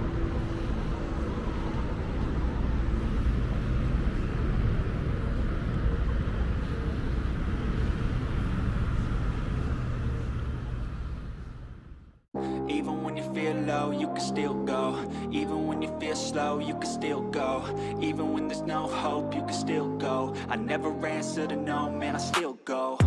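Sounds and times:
city street traffic noise: 0.0s - 12.2s.

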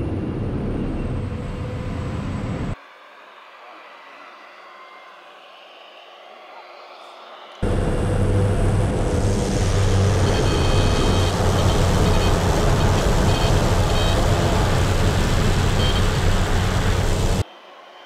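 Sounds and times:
plane engine and propeller: 0.0s - 2.8s, 7.6s - 17.4s.

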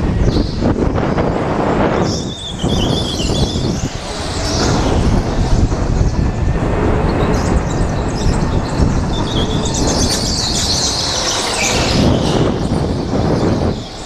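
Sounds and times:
go-kart engine at speed: 3.5s - 14.0s.

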